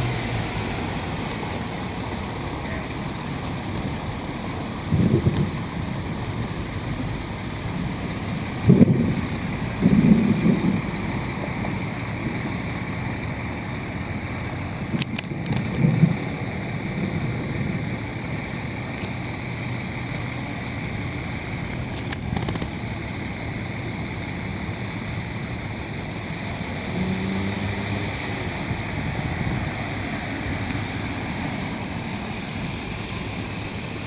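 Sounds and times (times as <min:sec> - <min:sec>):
city street traffic: 0:00.0 - 0:34.0
wind on microphone: 0:04.8 - 0:06.4, 0:07.6 - 0:13.2, 0:14.6 - 0:18.6, 0:26.1 - 0:34.0.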